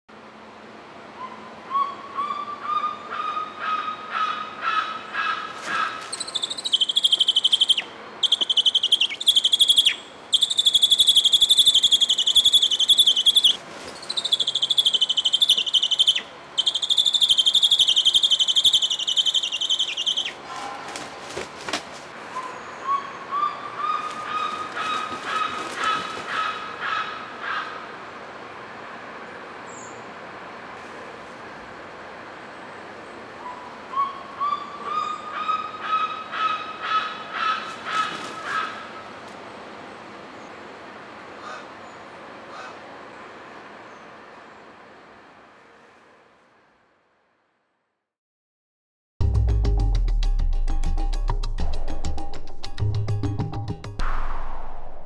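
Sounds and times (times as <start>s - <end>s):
shrill trilling whistle: 6.4s - 20.3s.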